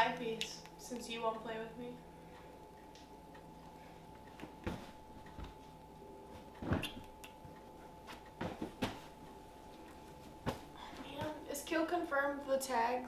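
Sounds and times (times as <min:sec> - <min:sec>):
pillows landing with dull thumps: 0:04.4 - 0:05.6, 0:06.6 - 0:07.0, 0:08.1 - 0:09.2, 0:10.2 - 0:11.4.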